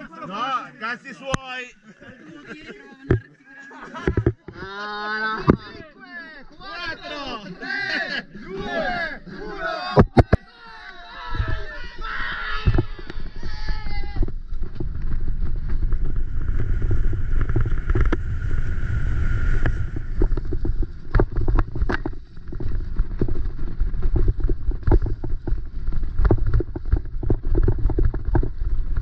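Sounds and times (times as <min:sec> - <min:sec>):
low rumble of wind and ground: 0:11.3 - 0:29.0
bike knocking and rattling: 0:12.6 - 0:18.6, 0:19.7 - 0:29.0.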